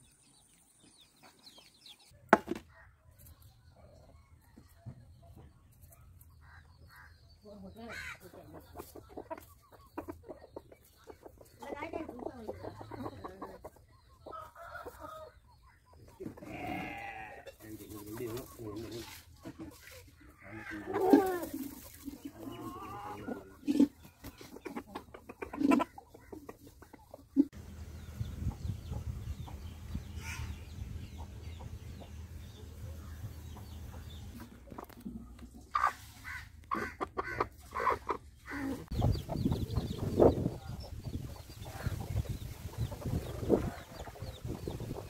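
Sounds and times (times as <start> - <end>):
chickens calling: 0.0 - 45.0
chickens clucking: 0.2 - 45.0
low rumbling noise: 27.6 - 34.5.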